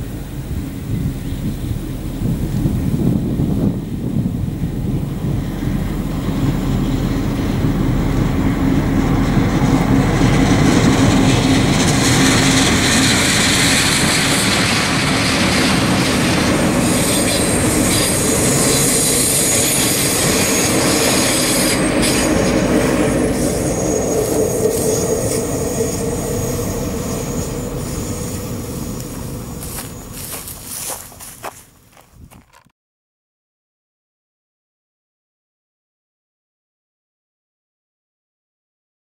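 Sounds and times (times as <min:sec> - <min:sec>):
diesel locomotive engine drone: 0:00.0 - 0:32.6
train wheels rumbling over rails: 0:00.0 - 0:32.7
high wheel squeal: 0:10.4 - 0:31.6.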